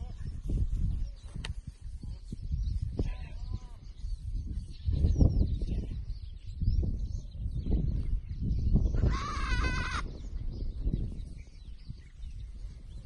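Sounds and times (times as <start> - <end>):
low rumble on microphone: 0.0 - 13.0
goat bleating: 9.0 - 10.0.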